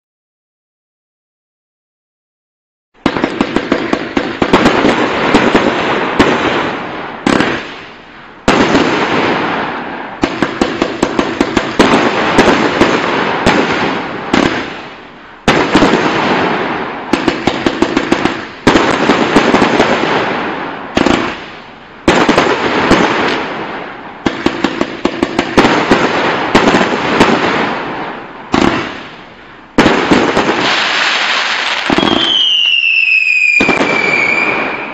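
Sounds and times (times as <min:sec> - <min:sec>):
firework barrage firing: 0:03.0 - 0:34.9
falling firework whistle: 0:29.8 - 0:34.9.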